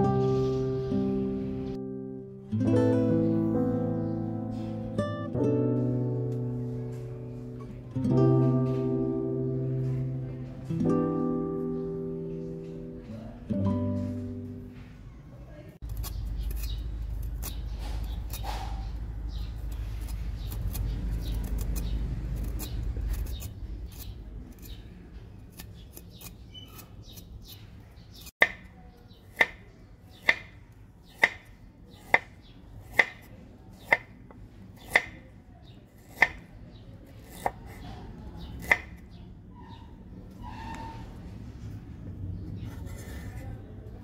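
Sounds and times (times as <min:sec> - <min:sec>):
knife scraping ginger skin: 0:15.8 - 0:28.6
knife chopping on wooden board: 0:28.3 - 0:28.7, 0:29.3 - 0:30.5, 0:31.1 - 0:34.1, 0:34.8 - 0:35.3, 0:38.5 - 0:39.0.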